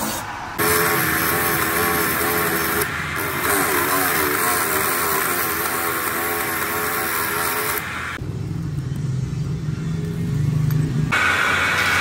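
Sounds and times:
die grinder whining: 0.0s - 8.2s.

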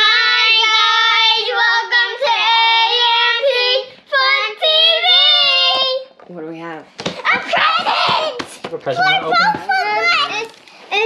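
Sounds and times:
child singing long notes: 0.0s - 6.2s.

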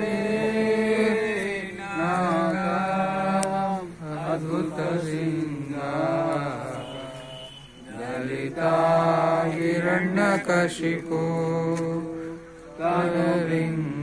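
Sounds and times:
voices chanting: 0.0s - 14.0s.

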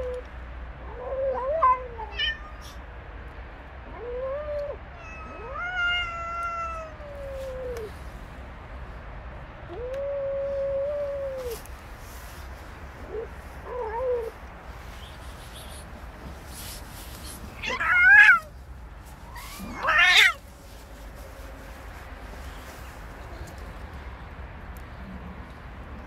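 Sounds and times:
cat yowling: 0.8s - 2.8s, 3.8s - 7.9s, 17.6s - 18.5s, 19.2s - 20.4s.

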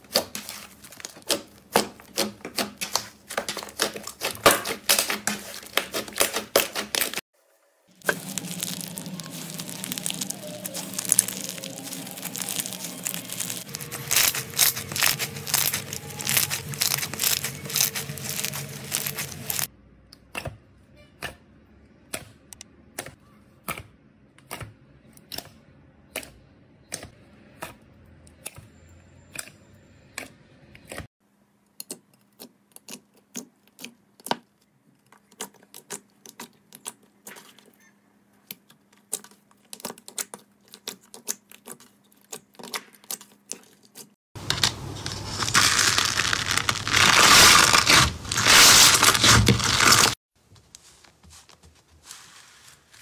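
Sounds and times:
crackling slime squish: 0.0s - 7.2s, 8.0s - 19.7s, 39.0s - 53.0s
slime clicking and popping: 8.0s - 19.6s.

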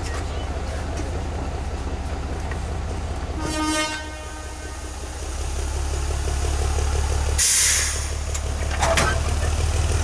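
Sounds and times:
diesel engine low rumble: 0.0s - 10.0s
locomotive horn toot: 3.3s - 5.0s.

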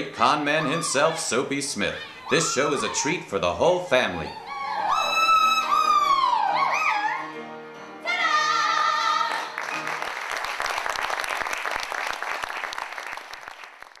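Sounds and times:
woman singing with vibrato: 8.0s - 9.5s
audience applause: 9.3s - 14.0s.

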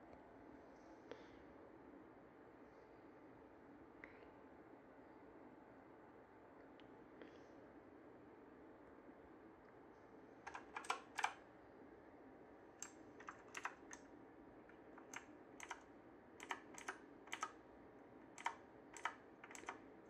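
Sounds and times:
mechanical keyboard key clicks: 10.5s - 11.4s, 12.8s - 14.0s, 15.0s - 15.8s, 16.4s - 17.6s, 18.4s - 19.8s.

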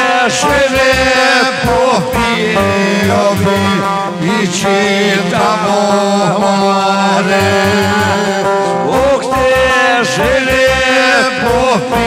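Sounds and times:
folk music on keyboard and saz: 0.0s - 12.0s
gliding lead melody: 0.1s - 12.0s
steady bass beat: 0.4s - 5.8s, 7.3s - 8.3s, 9.0s - 12.0s.

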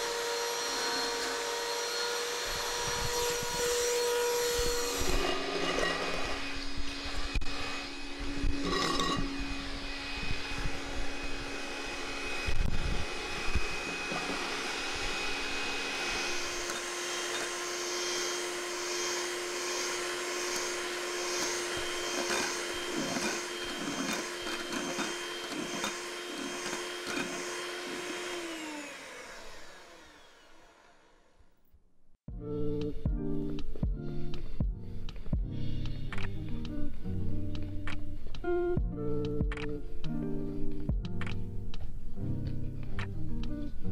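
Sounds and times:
electric mixer running: 0.0s - 31.5s.

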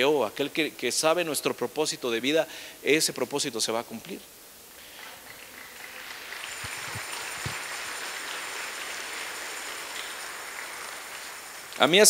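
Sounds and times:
congregation applauding: 4.8s - 12.0s.

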